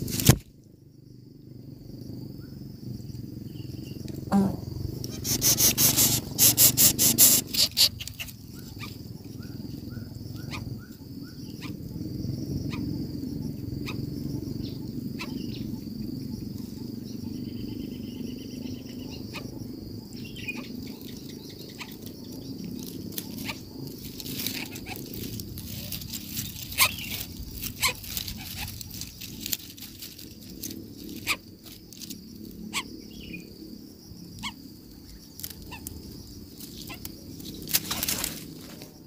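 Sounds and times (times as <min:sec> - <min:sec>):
high insect-like hum: 0:00.0 - 0:39.0
light clicks and rustles in nest: 0:21.8 - 0:32.2, 0:35.4 - 0:36.0, 0:36.6 - 0:38.9.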